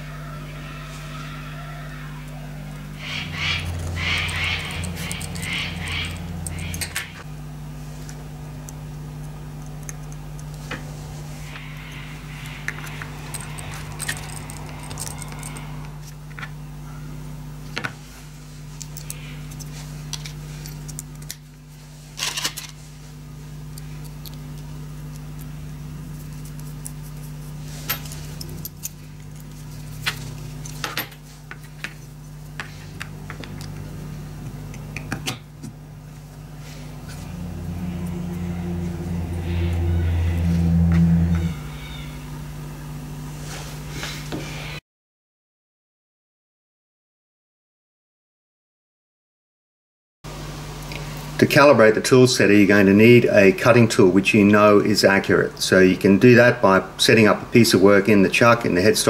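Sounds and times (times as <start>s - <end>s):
low hum: 0.0s - 44.8s
small metal parts clicking: 3.7s - 7.2s, 12.4s - 16.1s.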